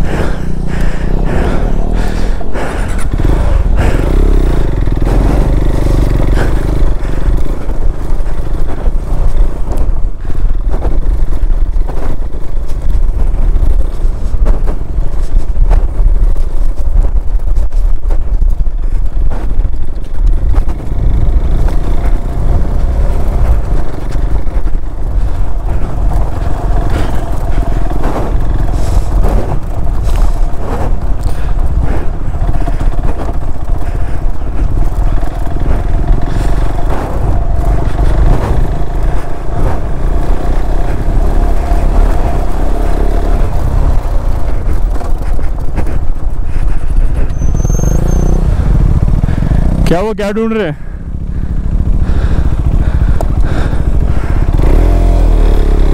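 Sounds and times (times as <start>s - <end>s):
motorcycle engine running: 0.0s - 55.9s
stones clattering under tyres: 5.0s - 48.6s.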